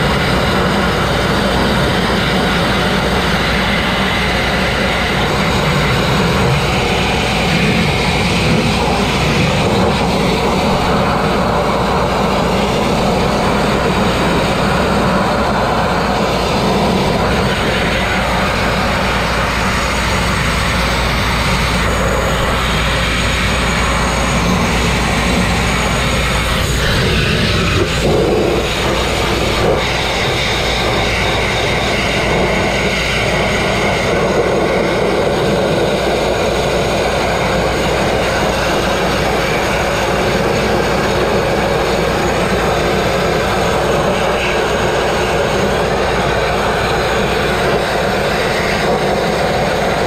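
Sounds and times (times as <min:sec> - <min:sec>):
grit blasting against steel: 0:03.9 - 0:33.4.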